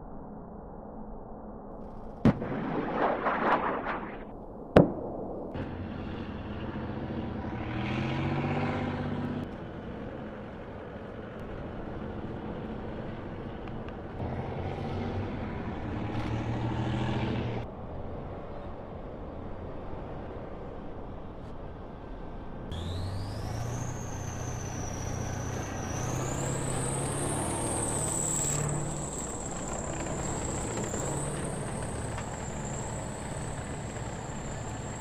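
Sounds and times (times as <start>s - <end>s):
steady rumble: 0.0s - 16.7s
gunfire bangs: 2.2s - 5.8s.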